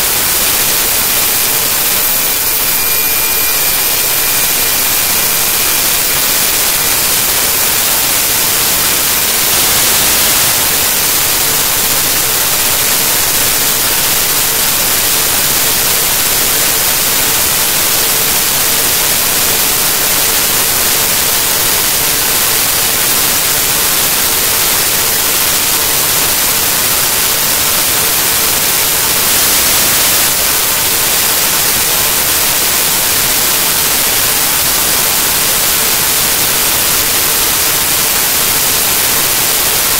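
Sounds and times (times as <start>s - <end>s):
static hiss: 0.0s - 39.9s.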